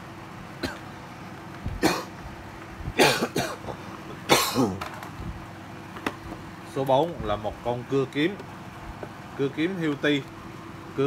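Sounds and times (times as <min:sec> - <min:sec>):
person coughing: 0:00.6 - 0:00.8, 0:01.8 - 0:02.1, 0:03.0 - 0:04.8.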